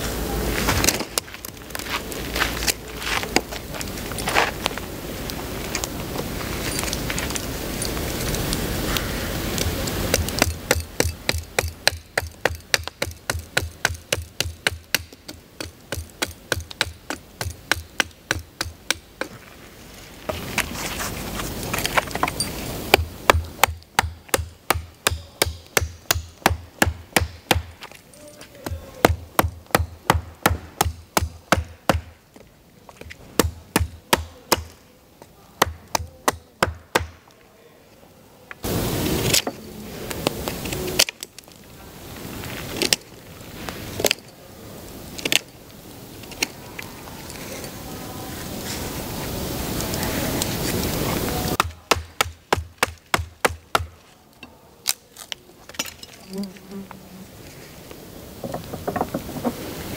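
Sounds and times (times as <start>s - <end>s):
knife carving wood: 8.3s - 19.4s, 20.3s - 27.9s
hatchet chopping wood: 10.1s - 19.4s, 22.9s - 28.0s, 28.6s - 32.2s, 33.0s - 34.8s, 35.6s - 37.3s, 51.6s - 54.0s.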